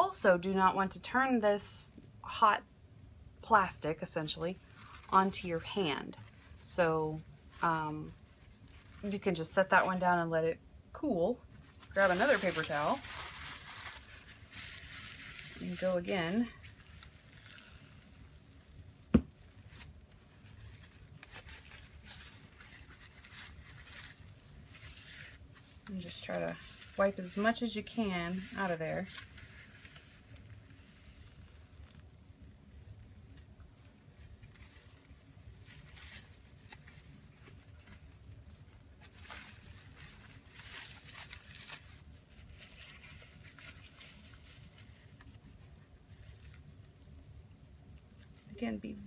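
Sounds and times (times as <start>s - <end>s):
faint low hum: 0.0s - 49.0s
paper towel crumpling: 4.0s - 10.3s, 11.5s - 48.6s
paper towel rubbing in metal pot: 11.0s - 18.9s, 19.7s - 32.0s.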